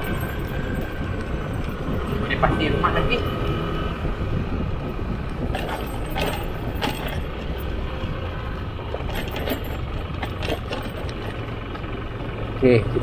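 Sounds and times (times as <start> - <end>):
motor scooter running: 0.0 - 13.0
wind and road noise: 0.0 - 13.0.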